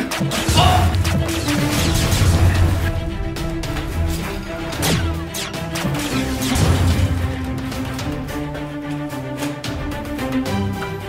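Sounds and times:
sharp music hits: 0:00.0 - 0:08.7
action music with held notes: 0:00.0 - 0:11.0.

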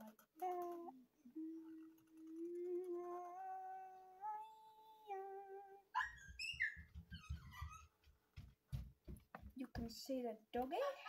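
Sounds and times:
person humming: 0:00.0 - 0:05.9.

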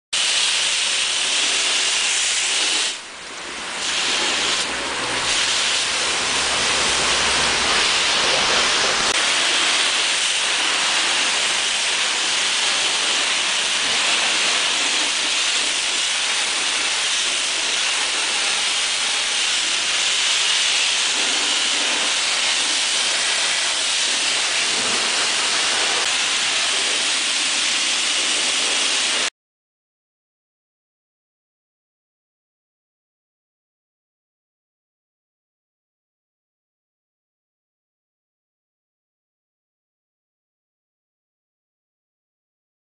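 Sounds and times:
pressure washer spraying hiss: 0:00.2 - 0:03.1, 0:03.7 - 0:29.3.

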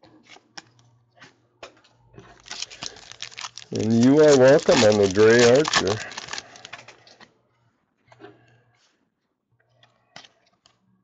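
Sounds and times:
cards clicking and rustling: 0:02.4 - 0:07.0.

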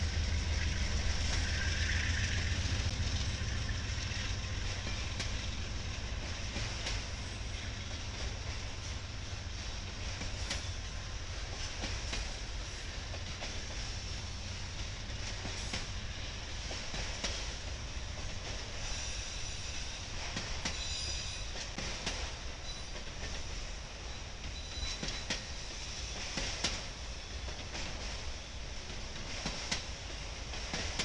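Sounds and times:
rail-joint clicks: 0:00.0 - 0:31.0
train wheels rumbling on rail: 0:00.0 - 0:31.0
high wheel squeal: 0:20.7 - 0:21.6.

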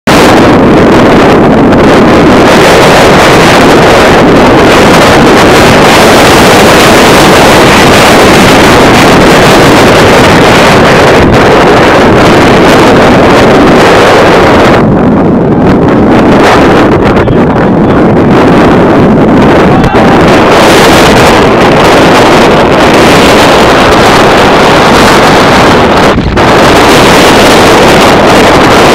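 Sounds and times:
heavy wind noise on microphone: 0:00.0 - 0:28.9.

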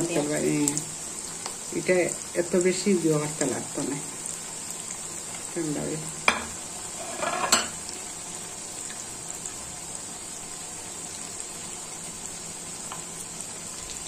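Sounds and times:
patties sizzling in oil: 0:00.0 - 0:14.0
utensil clattering against pan: 0:06.3 - 0:07.8.

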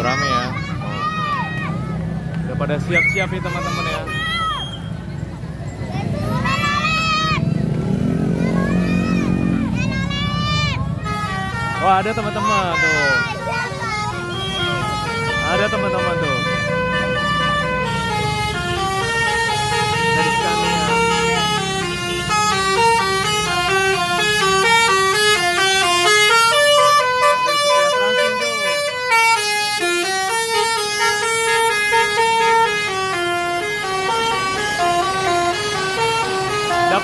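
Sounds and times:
children shouting: 0:00.0 - 0:02.1, 0:02.9 - 0:05.0, 0:05.8 - 0:14.8
multi-tone horn melody: 0:10.2 - 0:37.0.

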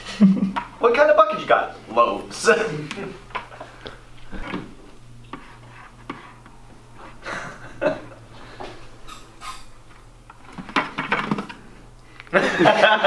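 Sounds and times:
marker scratching on plastic: 0:05.3 - 0:07.2, 0:09.1 - 0:09.8.

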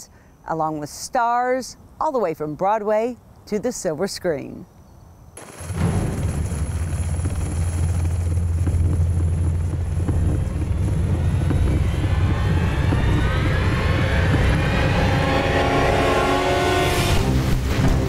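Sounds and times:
helicopter rotor beating: 0:05.4 - 0:17.8
music: 0:17.2 - 0:18.0.

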